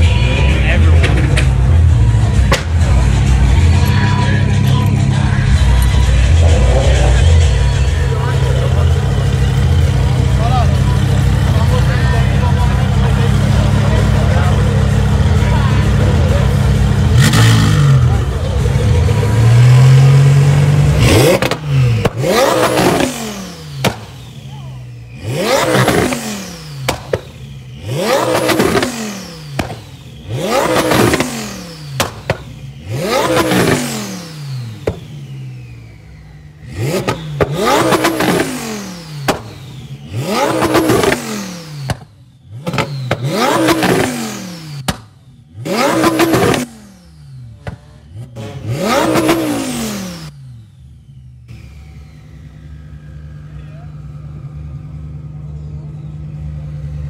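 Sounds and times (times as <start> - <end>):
car engine revving: 0.0 - 57.0
exhaust pops and crackles: 0.8 - 3.0, 21.2 - 23.2, 23.8 - 24.2, 26.8 - 27.4, 29.6 - 33.8, 34.7 - 35.2, 36.9 - 38.6, 39.2 - 39.7, 40.4 - 44.2, 44.8 - 46.7, 47.5 - 48.0.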